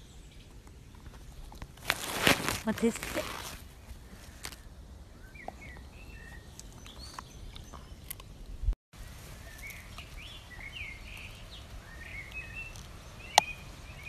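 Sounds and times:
birds chirping: 2.7s - 8.7s, 9.3s - 14.0s
dog gnawing a stick: 5.5s - 8.6s.

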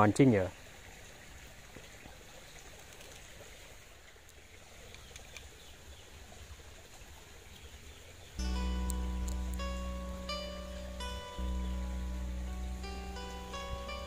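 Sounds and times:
small river flowing: 0.0s - 14.0s
faint ticks: 2.6s - 3.5s, 4.2s - 5.6s, 8.4s - 10.0s.

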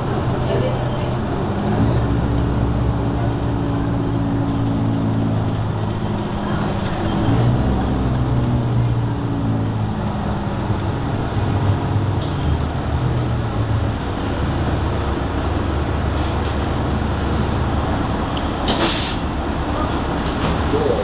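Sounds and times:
bus diesel engine running: 0.0s - 21.0s
road noise: 0.0s - 21.0s.

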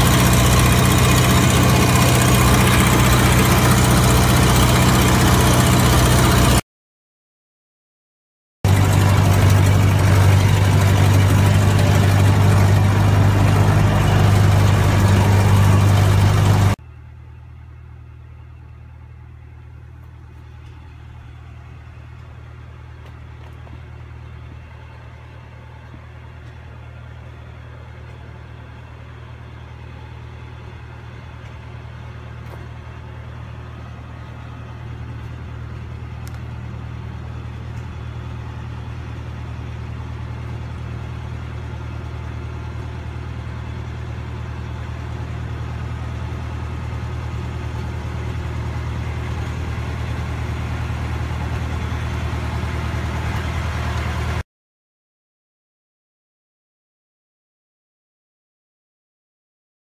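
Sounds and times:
tractor engine humming: 0.0s - 6.6s, 8.6s - 54.4s.

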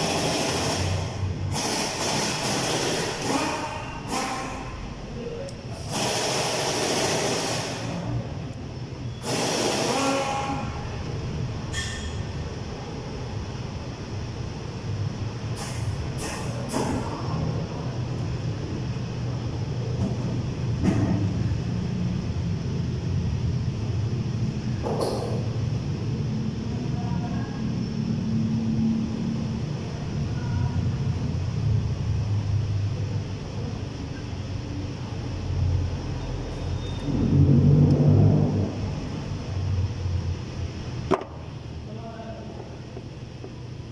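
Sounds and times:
short hissing bursts: 0.0s - 4.6s, 5.7s - 8.0s, 9.2s - 10.5s
low mechanical hum: 0.0s - 43.9s
low engine-like rumble: 10.5s - 43.9s.

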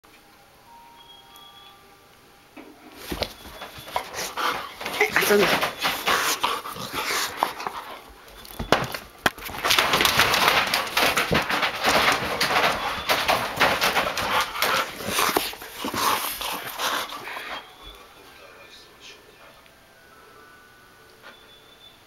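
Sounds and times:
dogs scuffling: 2.8s - 18.7s
dogs breathing noisily: 3.0s - 18.7s.

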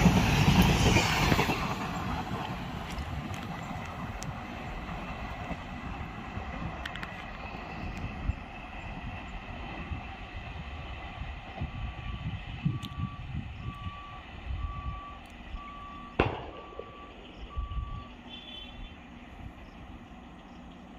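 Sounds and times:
electronic warning beeps: 12.0s - 18.9s.

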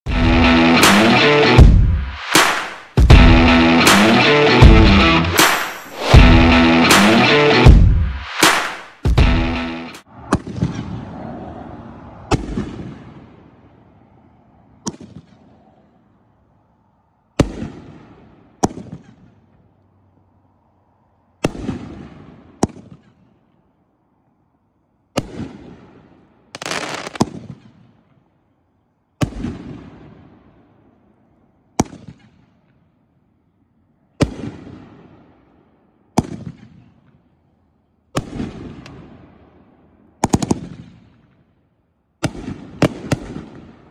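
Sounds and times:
fireworks bangs echoing: 0.9s - 3.3s, 5.3s - 7.4s, 17.4s - 19.5s, 21.4s - 23.3s, 25.2s - 28.1s, 29.2s - 30.7s, 34.2s - 35.4s, 36.2s - 37.1s, 38.2s - 41.3s, 42.2s - 43.9s.

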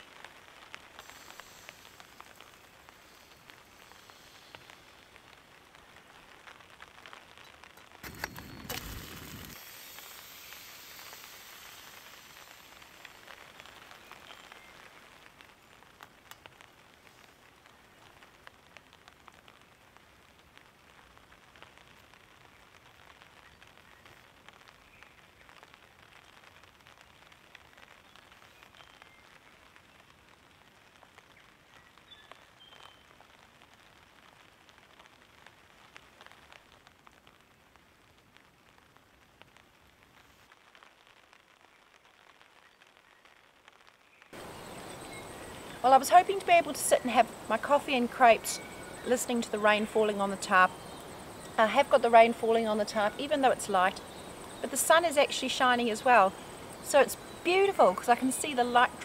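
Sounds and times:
batter sizzling in a pan: 0.3s - 16.0s, 44.1s - 59.0s.

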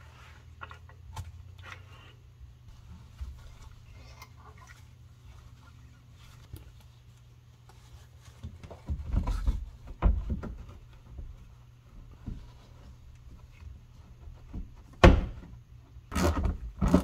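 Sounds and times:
steady low hum: 0.0s - 16.9s
plastic panel knocking and rattling: 8.8s - 11.4s.

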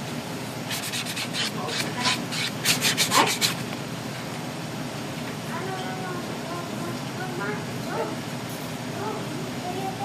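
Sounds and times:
nail file rubbing on nails: 0.7s - 3.6s.

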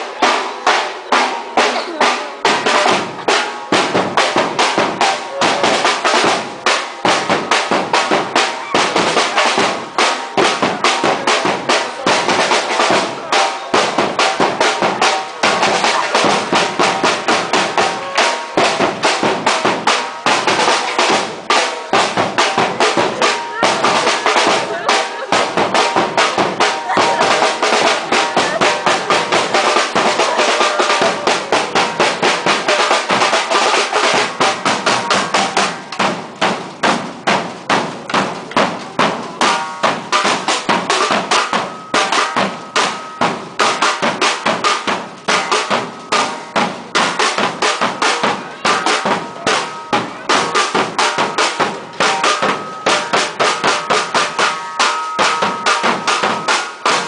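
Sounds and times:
snare drums rattling: 0.0s - 57.0s.

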